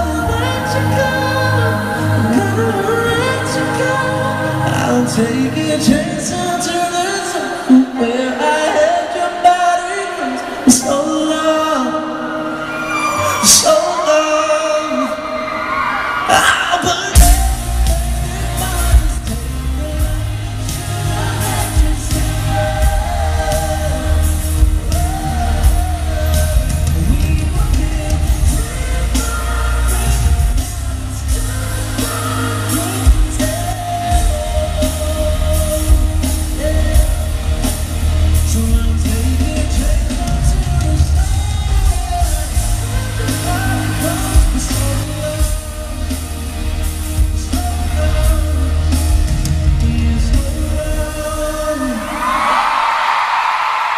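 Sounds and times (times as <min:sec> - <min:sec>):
male singer: 0:00.0 - 0:12.6, 0:13.2 - 0:53.3
steady drum beat: 0:17.1 - 0:52.0
heavy bass line: 0:17.2 - 0:51.7.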